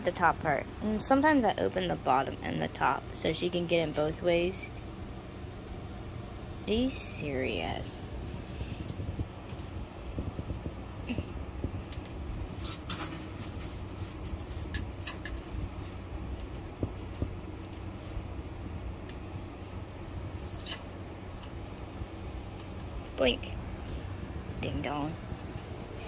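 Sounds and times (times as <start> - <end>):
low steady hum: 0.0 - 26.0
iguana claws scratching: 11.8 - 21.7.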